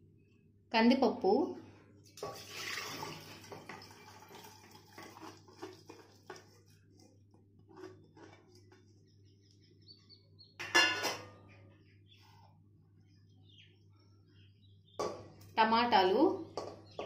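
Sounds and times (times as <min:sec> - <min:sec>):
metal colander clanging: 0:02.2 - 0:06.1, 0:10.6 - 0:11.4, 0:16.5 - 0:17.0.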